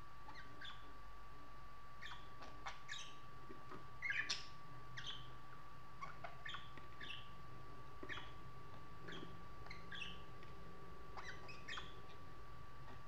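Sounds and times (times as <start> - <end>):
budgerigars chirping and squeaking: 0.3 - 0.9, 2.0 - 3.3, 4.0 - 5.4, 6.0 - 7.4, 8.0 - 8.4, 9.0 - 10.3, 11.1 - 12.3.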